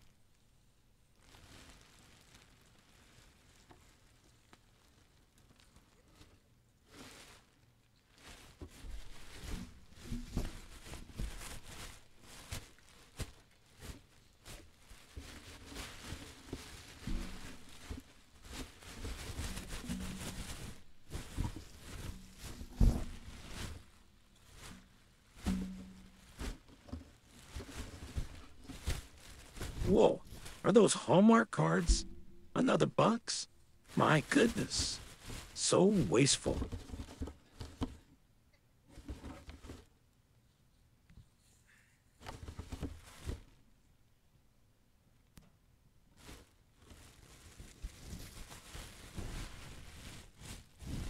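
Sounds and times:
plastic trash bags rustling: 6.9 - 38.0, 46.1 - 51.0.

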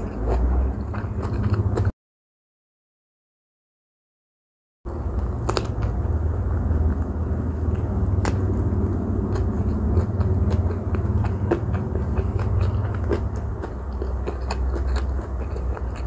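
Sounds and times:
steady low rumble: 4.9 - 16.0
wet chewing mouth clicks: 6.9 - 16.0
biting into food: 7.8 - 16.0.

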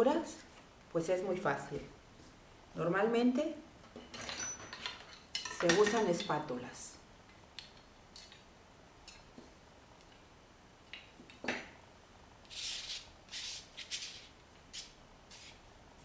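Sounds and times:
palette knife scraping on paper: 12.5 - 15.6.

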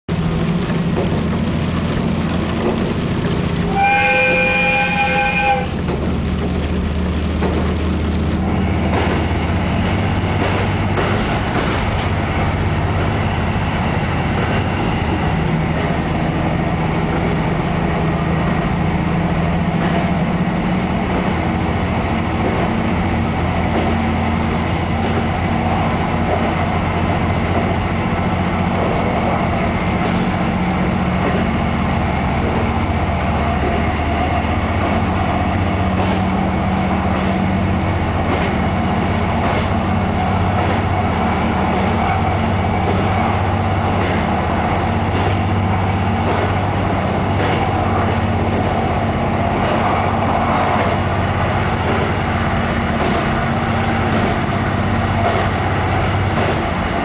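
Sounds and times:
wheel and rail rumble: 0.0 - 57.0
diesel engine drone: 0.1 - 57.0
train horn blast: 3.7 - 5.9.

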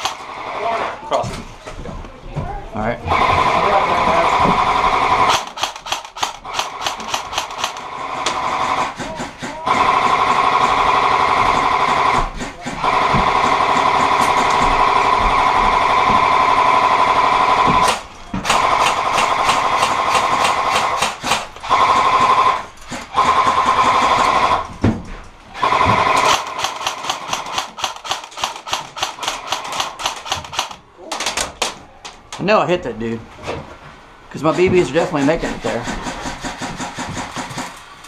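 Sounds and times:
airsoft gun firing bursts: 0.0 - 0.5, 4.6 - 24.6, 25.6 - 30.8, 34.5 - 37.8
gun motor whining: 25.6 - 30.8.

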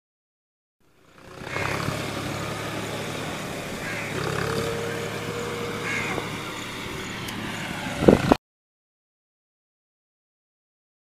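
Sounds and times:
engine humming: 0.8 - 8.4.

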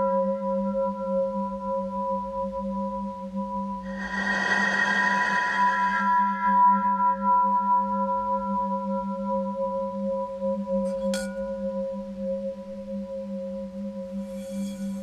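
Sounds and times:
ringing bell-like tones: 14.2 - 15.0.

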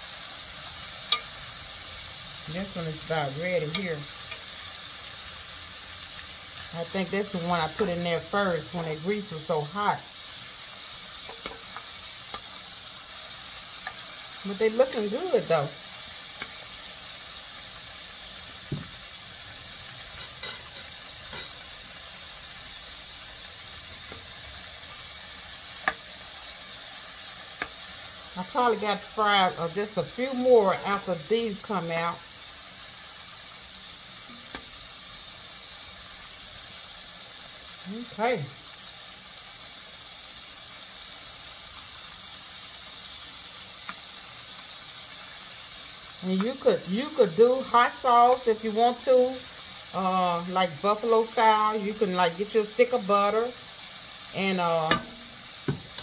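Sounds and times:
deep-frying in hot oil: 0.0 - 56.0
metal spoon clinking on pot: 1.1 - 1.3, 54.9 - 55.3.

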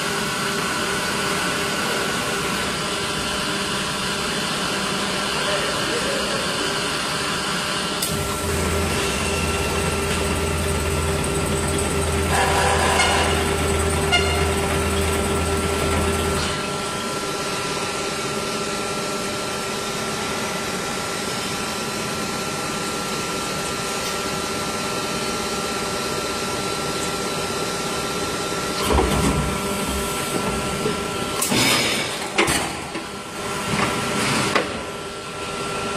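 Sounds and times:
machine humming with a whine: 6.0 - 31.5.

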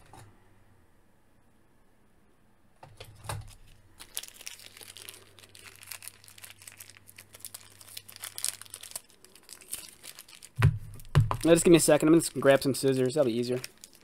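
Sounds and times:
plastic bag crinkling: 3.4 - 14.0.

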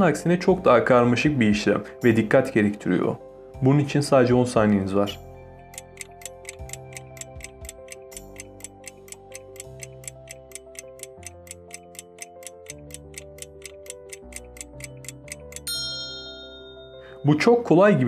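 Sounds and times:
soft background music: 0.0 - 18.0
clock ticking: 5.7 - 15.7
bell-like ding: 15.6 - 17.4.

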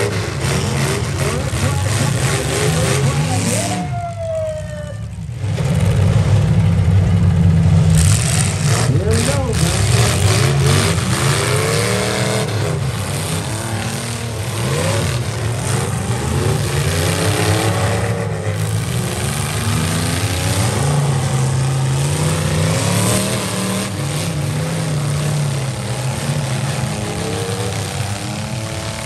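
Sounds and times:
truck engines revving: 0.0 - 29.0.

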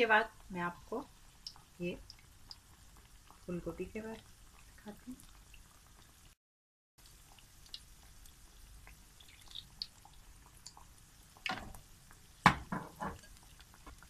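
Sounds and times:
food deep-frying in hot oil: 0.0 - 6.4, 7.0 - 14.0.

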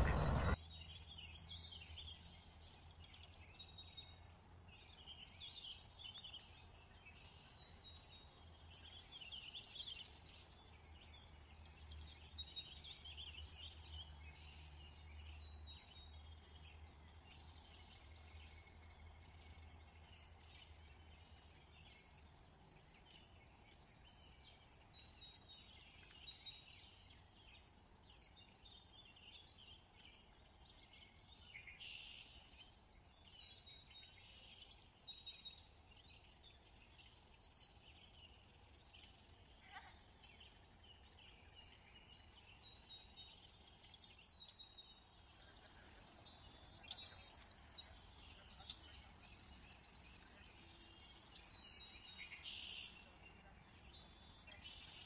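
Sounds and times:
low steady hum: 0.0 - 0.6
small birds chirping: 0.0 - 55.0.

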